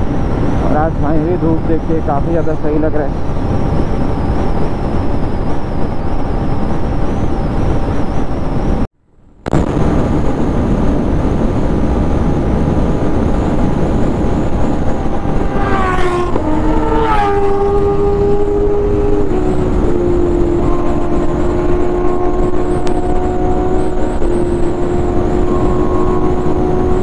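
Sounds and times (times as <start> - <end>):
wind rush: 0.0 - 27.0
motorcycle engine at speed: 9.4 - 27.0
pitched tone sliding down: 13.7 - 27.0.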